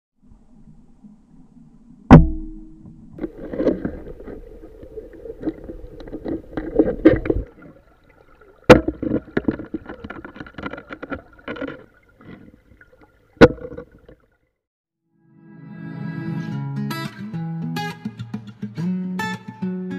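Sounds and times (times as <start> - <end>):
muffled underwater knocking: 2.1 - 7.5.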